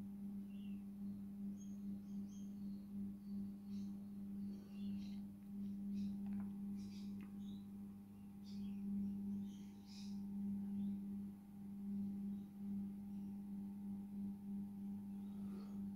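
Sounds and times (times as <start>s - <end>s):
low electrical hum: 0.0s - 15.9s.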